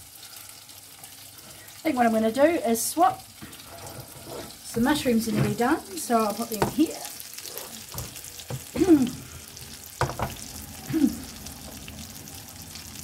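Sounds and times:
food sizzling in a pan: 0:00.0 - 0:13.0
spoon squeaky scrapes on pan: 0:03.6 - 0:04.7, 0:07.3 - 0:08.1.

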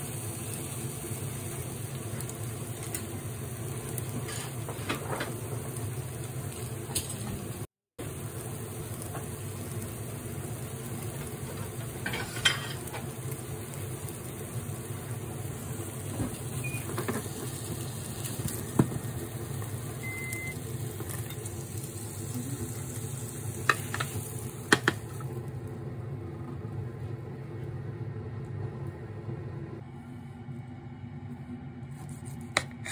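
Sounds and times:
omelette sizzling in a pan: 0:00.0 - 0:25.8.

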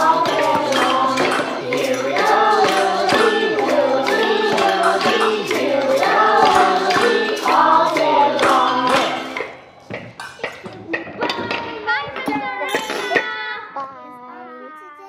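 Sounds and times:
children singing: 0:00.0 - 0:09.5
kitchen utensils struck as percussion: 0:00.0 - 0:11.7, 0:12.3 - 0:13.4.

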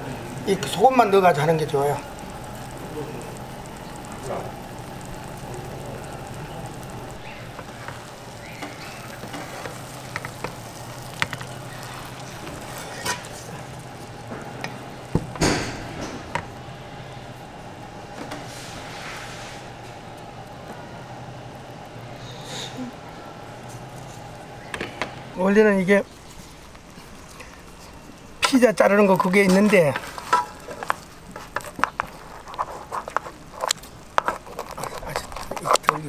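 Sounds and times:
egg sizzling in oil: 0:00.0 - 0:36.0
wooden spatula scraping a pan: 0:18.3 - 0:19.7.

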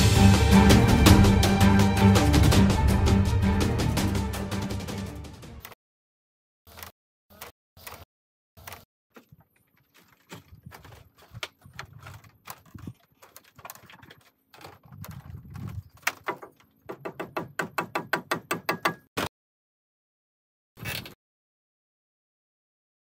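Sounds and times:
bamboo poles knocking: 0:09.1 - 0:19.1.

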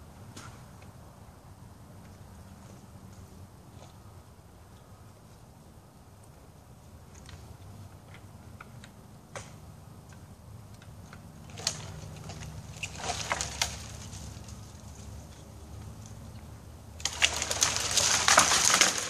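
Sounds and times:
low engine hum: 0:00.0 - 0:19.0
wood and twigs cracking: 0:07.1 - 0:19.0.

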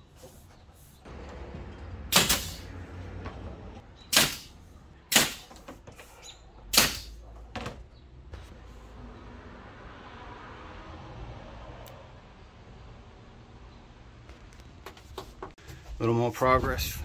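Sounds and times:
pneumatic nailer firing: 0:02.1 - 0:02.8, 0:04.1 - 0:06.1, 0:06.7 - 0:07.2.

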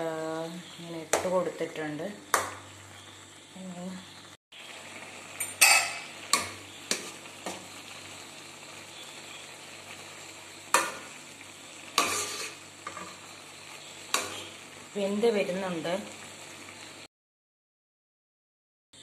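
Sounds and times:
sauce simmering hiss: 0:00.0 - 0:17.1
metal ladle scraping a pan: 0:05.4 - 0:07.3, 0:11.9 - 0:13.3, 0:14.1 - 0:14.6.

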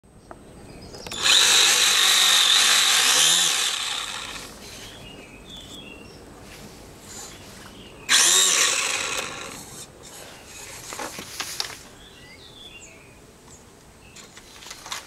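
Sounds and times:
model airboat motor whine: 0:01.1 - 0:04.6, 0:08.1 - 0:09.8.

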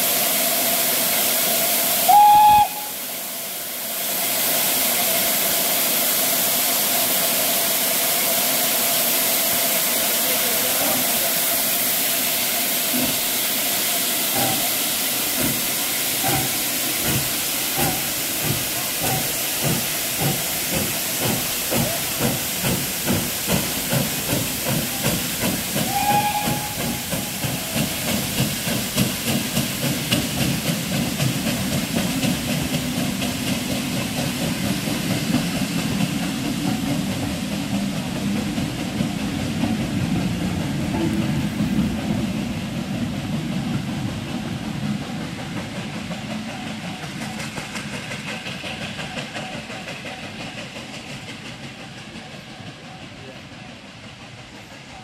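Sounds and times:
steam hissing: 0:00.0 - 0:55.0
steam locomotive exhaust beats: 0:00.0 - 0:55.0
steam locomotive whistle: 0:02.0 - 0:03.1, 0:25.8 - 0:27.8.

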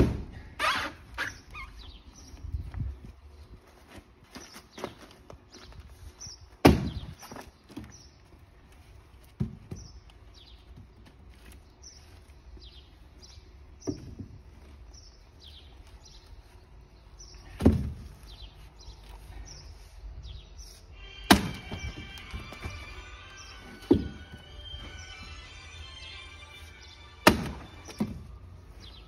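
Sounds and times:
axe thudding into wood: 0:00.0 - 0:00.4, 0:06.6 - 0:07.3, 0:17.5 - 0:18.0, 0:21.3 - 0:22.5, 0:27.2 - 0:28.3
bird chirping: 0:18.2 - 0:29.0
wood cracking: 0:21.3 - 0:25.3, 0:27.2 - 0:28.3.

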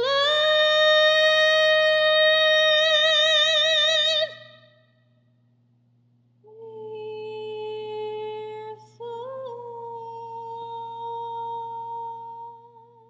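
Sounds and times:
woman singing unaccompanied: 0:00.0 - 0:04.6, 0:06.4 - 0:13.0.

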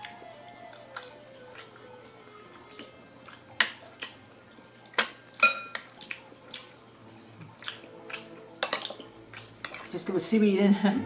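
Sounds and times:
spoon clinking on ceramic plates: 0:05.0 - 0:05.9, 0:08.6 - 0:09.0, 0:09.6 - 0:09.9.

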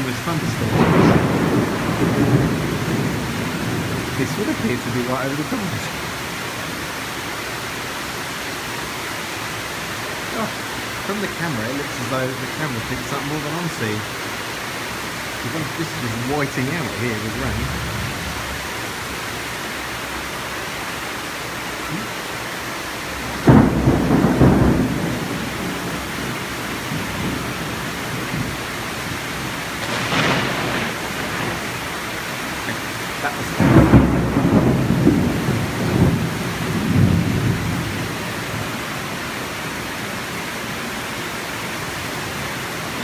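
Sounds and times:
thunder rumbling: 0:00.0 - 0:07.2, 0:10.2 - 0:19.8, 0:23.0 - 0:39.8
heavy rain hissing: 0:00.0 - 0:43.0.

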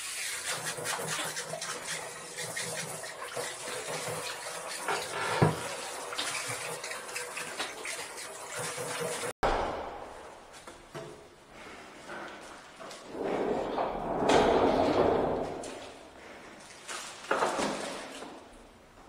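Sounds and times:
shower water spraying into plastic: 0:00.0 - 0:09.3.

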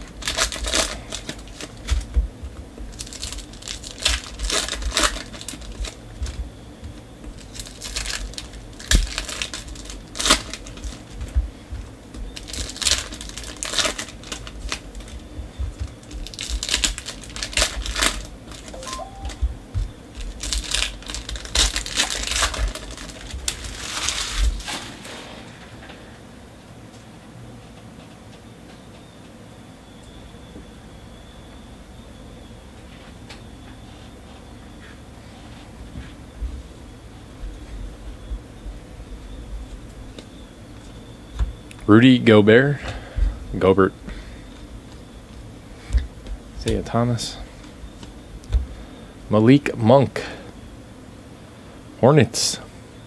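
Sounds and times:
foil wrappers crinkling and tearing: 0:00.0 - 0:02.2, 0:02.8 - 0:06.4, 0:07.3 - 0:19.3, 0:20.1 - 0:25.6.

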